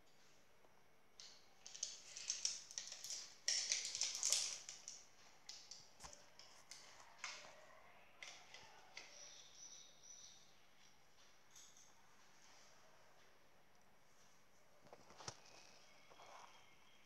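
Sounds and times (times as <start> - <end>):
rhinestones rattling and clicking: 1.2 - 5.8.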